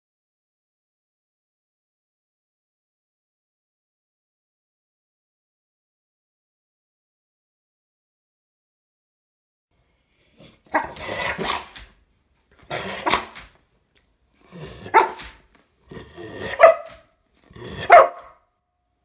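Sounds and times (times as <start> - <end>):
dog growling: 10.3 - 11.9, 12.6 - 13.5, 14.4 - 18.3
dog barking: 10.7 - 11.8, 12.7 - 13.4, 14.6 - 15.4, 16.2 - 18.4.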